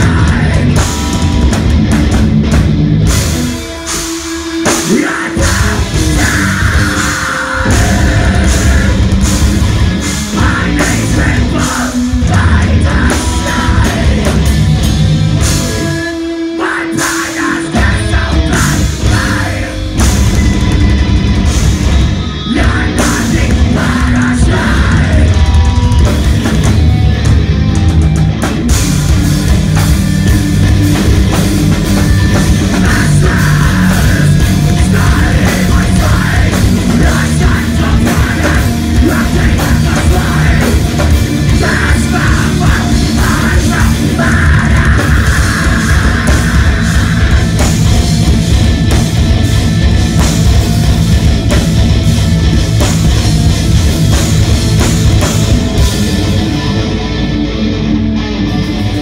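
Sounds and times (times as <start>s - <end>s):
heavy metal band playing live: 0.0s - 59.0s
vocalist screaming: 4.9s - 9.2s, 22.4s - 25.4s, 32.8s - 47.6s.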